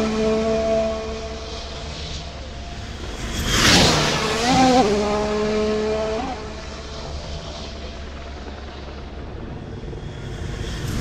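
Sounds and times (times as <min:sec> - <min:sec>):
race car going past: 0:00.0 - 0:08.0.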